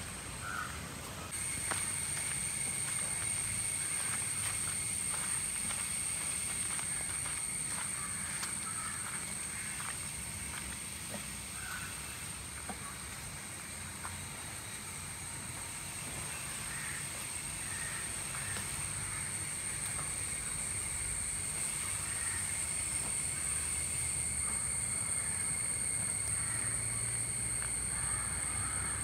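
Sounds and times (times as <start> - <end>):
crow-like caws: 0.4 - 1.3, 3.7 - 10.6, 11.5 - 13.0, 16.5 - 20.2, 21.8 - 23.8, 24.4 - 29.0
high-pitched hum: 1.2 - 29.0.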